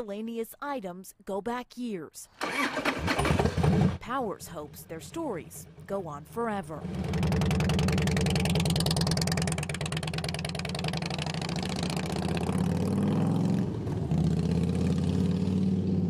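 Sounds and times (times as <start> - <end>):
motorcycle engine running: 2.4 - 4.0, 4.8 - 16.0.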